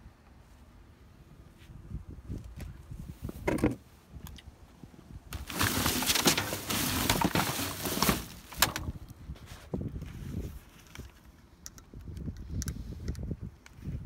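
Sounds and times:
junk rustling and clattering: 5.3s - 9.0s.

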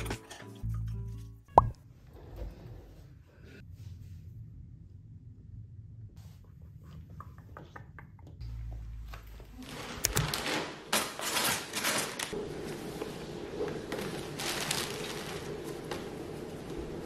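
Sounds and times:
paper bag rustling and crinkling: 9.4s - 17.0s.

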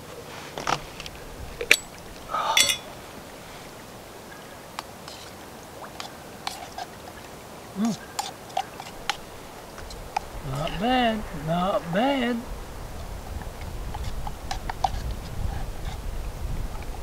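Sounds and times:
metal cookware clinking: 1.6s - 2.9s
spoon stirring in metal cup: 2.6s - 2.9s, 8.2s - 9.3s, 13.9s - 15.2s.

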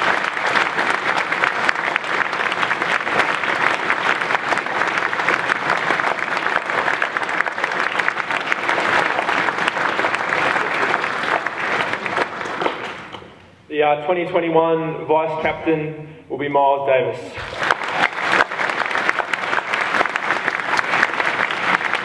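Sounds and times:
crowd clapping: 0.0s - 13.4s, 17.4s - 22.0s.

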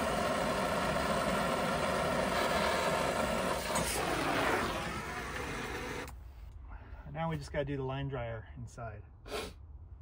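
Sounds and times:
torch burning with rushing hiss: 0.0s - 6.1s.

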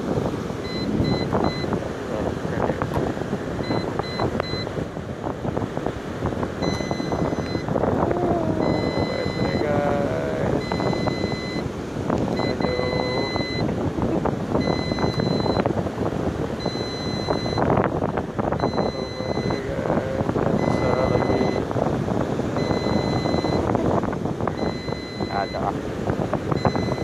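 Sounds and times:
beach surf: 0.0s - 27.0s
wind buffeting microphone: 0.0s - 27.0s
short high electronic beeps: 0.6s - 1.7s, 3.6s - 4.7s, 6.6s - 7.7s, 8.6s - 9.7s, 10.6s - 11.6s, 12.4s - 13.7s, 14.6s - 15.6s, 16.6s - 17.7s, 18.6s - 19.7s, 20.6s - 21.6s, 22.6s - 23.7s, 24.6s - 25.7s, 26.6s - 27.0s.

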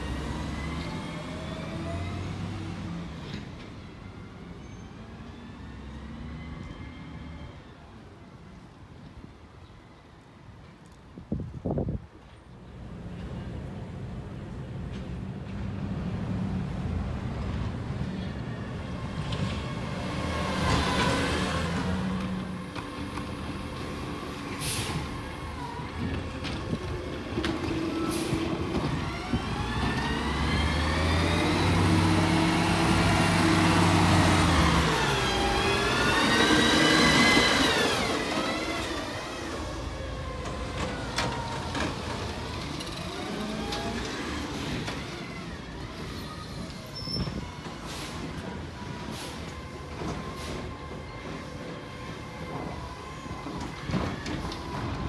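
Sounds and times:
garbage truck driving past: 15.2s - 55.0s.

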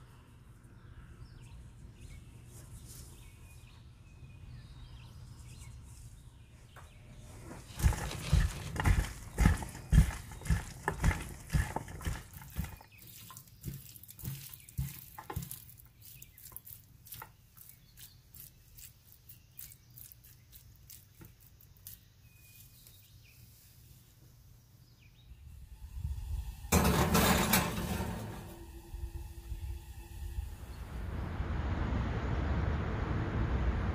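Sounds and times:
dish scraping onto oven rack: 26.7s - 28.7s.

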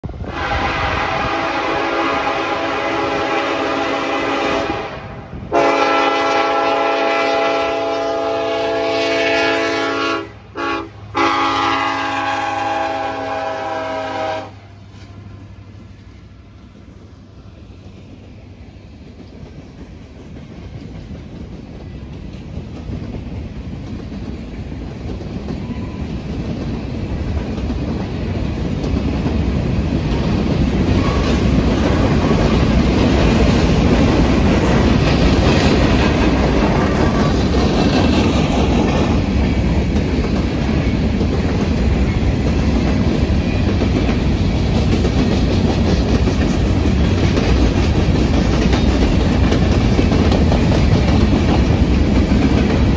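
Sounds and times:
freight train wheels clacking: 0.0s - 52.9s.

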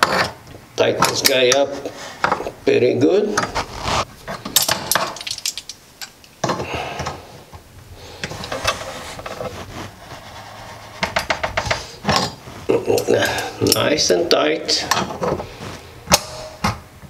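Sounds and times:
wrench clicking and scraping: 4.4s - 6.3s.

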